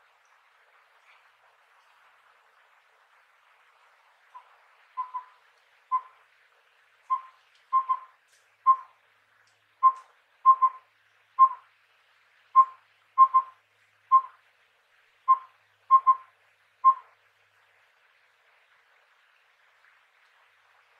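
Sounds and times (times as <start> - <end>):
owl whistling: 4.4 - 6.2, 7.1 - 8.1, 8.7 - 8.9, 9.8 - 10.8, 11.4 - 11.6, 12.6 - 14.4, 15.3 - 17.1.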